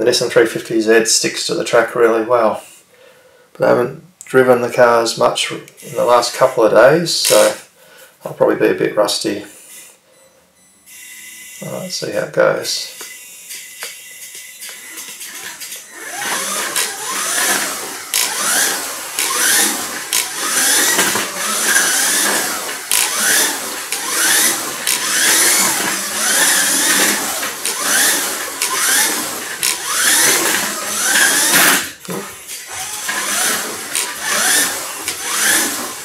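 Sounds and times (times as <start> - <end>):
toy car motor whining: 9.4 - 12.0, 12.8 - 36.0
sharp clicks: 13.0 - 32.2.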